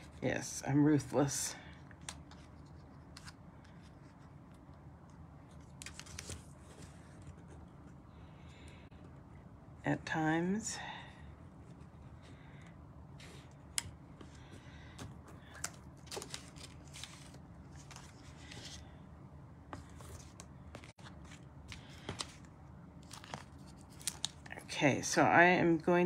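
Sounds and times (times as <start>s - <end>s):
paper rustling and sliding: 15.5s - 18.9s.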